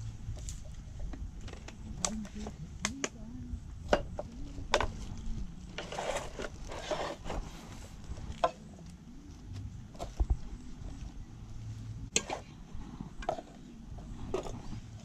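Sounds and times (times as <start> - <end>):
rustling and scraping: 3.8 - 15.0.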